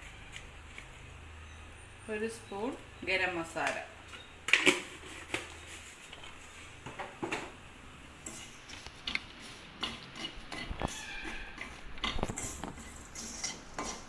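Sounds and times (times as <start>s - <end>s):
steel spoon scraping a pan: 8.2s - 14.0s.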